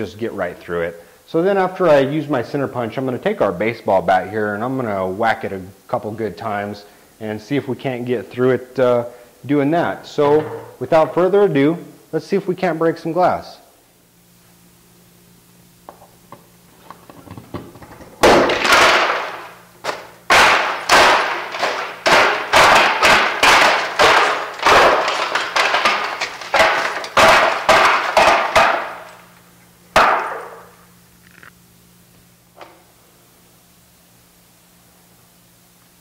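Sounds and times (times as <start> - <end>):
window glass shattering: 18.2 - 19.5, 20.3 - 29.2
broken glass crashing: 18.2 - 29.2, 30.0 - 30.7.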